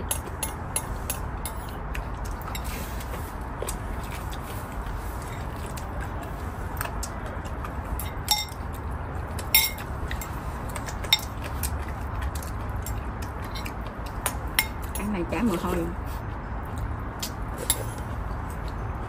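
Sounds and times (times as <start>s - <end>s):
spoons clinking against ceramic bowls: 8.0s - 8.6s, 9.5s - 10.4s, 12.8s - 15.1s.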